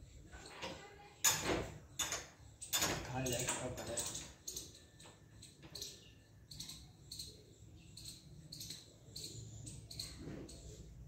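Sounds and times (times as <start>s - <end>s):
beak pecking on stone floor: 3.9s - 11.0s.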